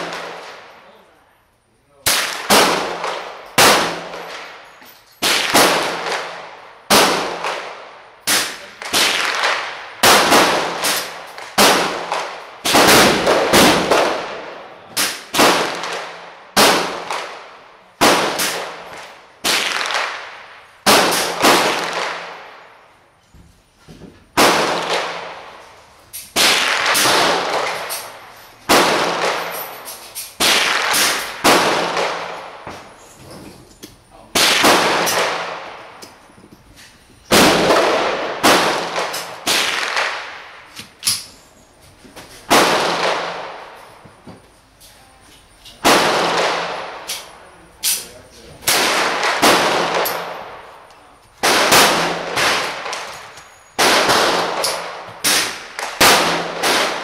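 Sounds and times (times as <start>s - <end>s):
gunshots with echo: 2.0s - 4.6s, 5.2s - 22.6s, 26.4s - 29.7s, 30.4s - 32.6s, 34.3s - 36.0s, 37.3s - 40.5s, 42.5s - 43.8s, 45.8s - 47.3s, 48.6s - 50.8s, 51.4s - 57.0s.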